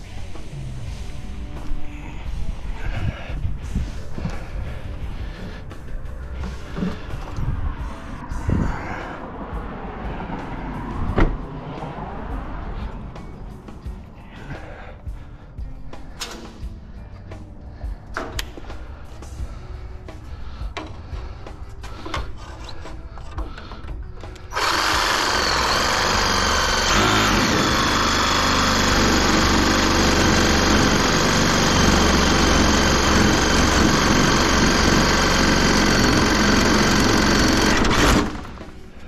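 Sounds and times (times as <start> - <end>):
reciprocating saw cutting metal: 24.5 - 38.6.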